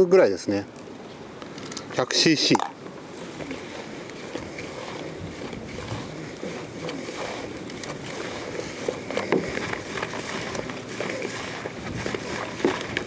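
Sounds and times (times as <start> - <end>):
fingers stirring gritty bait mix: 3.5 - 13.0.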